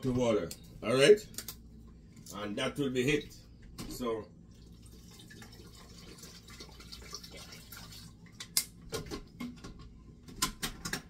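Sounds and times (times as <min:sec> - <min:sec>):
water trickling into a jug: 0:04.4 - 0:08.4.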